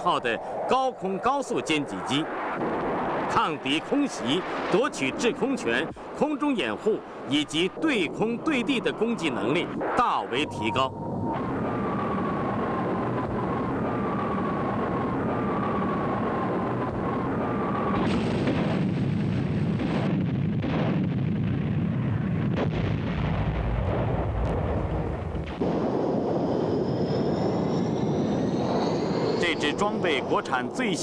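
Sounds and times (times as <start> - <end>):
jet whine rising in pitch: 0.0 - 18.4, 25.6 - 31.0
military jet noise: 0.0 - 22.6, 23.2 - 31.0
bomb explosions rumbling: 1.2 - 31.0.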